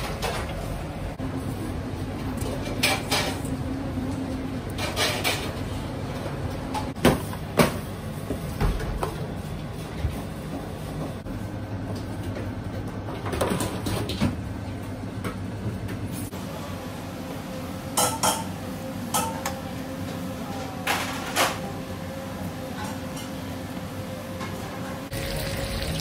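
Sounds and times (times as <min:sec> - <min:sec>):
metal baking trays clanking: 0:02.7 - 0:03.4.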